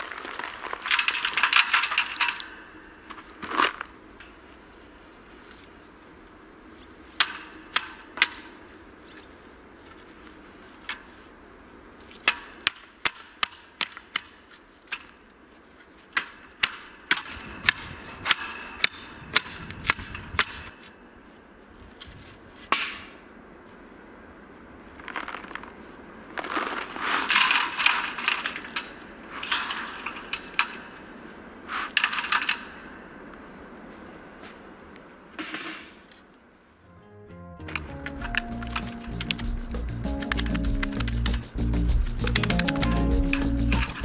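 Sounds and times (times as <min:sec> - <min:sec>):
earth crunching underfoot: 0:00.0 - 0:02.2, 0:24.8 - 0:30.3.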